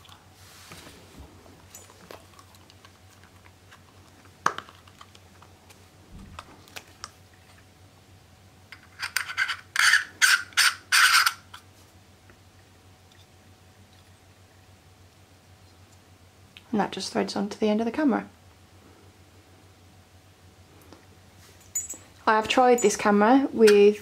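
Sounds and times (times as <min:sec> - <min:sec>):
metal threads scraping: 0:08.9 - 0:11.5.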